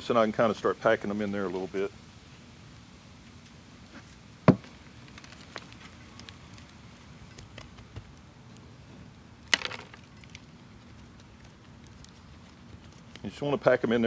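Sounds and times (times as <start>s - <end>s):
soil rustling: 3.2s - 14.0s.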